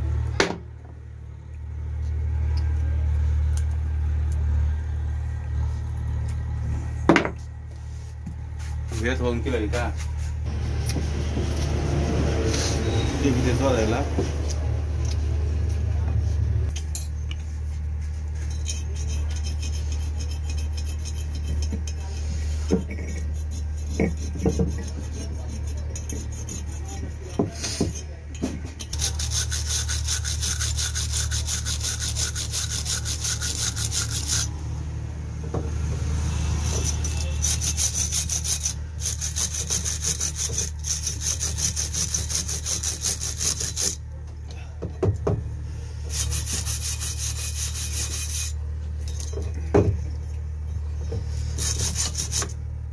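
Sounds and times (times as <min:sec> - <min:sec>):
steady low hum: 0:00.0 - 0:52.9
wire brush scraping metal: 0:18.3 - 0:27.8, 0:28.9 - 0:34.5, 0:36.4 - 0:44.0, 0:46.0 - 0:49.4, 0:51.2 - 0:52.6.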